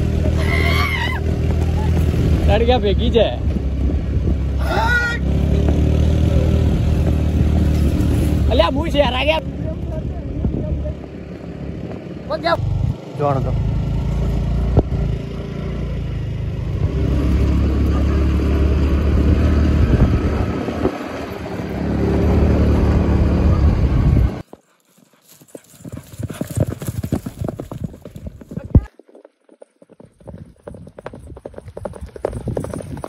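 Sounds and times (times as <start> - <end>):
horses galloping on dirt: 0.0 - 4.5, 24.4 - 33.0
vehicle engine running: 0.0 - 24.4
wind rush: 1.8 - 5.2, 18.9 - 24.4.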